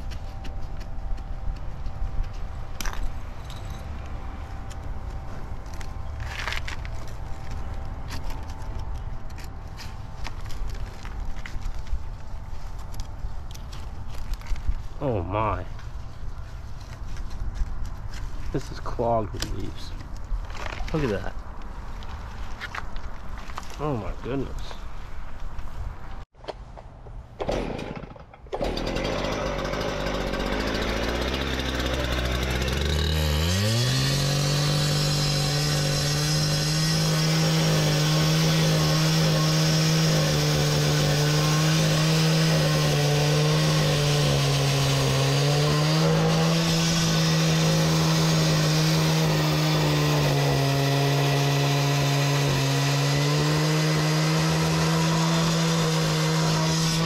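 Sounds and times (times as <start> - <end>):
cut-off saw cutting concrete: 27.4 - 57.0.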